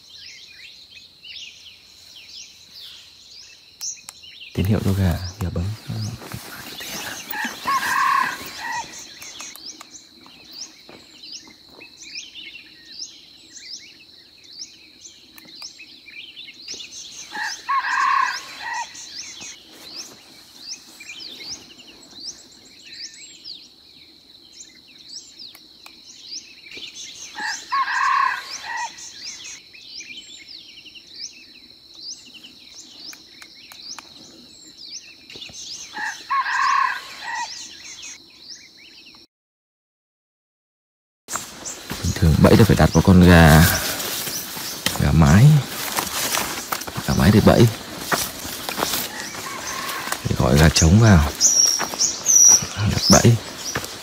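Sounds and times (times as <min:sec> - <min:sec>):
insect droning: 0:00.0 - 0:39.2, 0:41.3 - 0:54.0
small birds chirping: 0:00.0 - 0:39.3, 0:41.3 - 0:54.0
rooster crow from phone: 0:07.3 - 0:08.8, 0:17.4 - 0:18.9, 0:27.4 - 0:28.9, 0:36.0 - 0:37.6, 0:49.1 - 0:50.3.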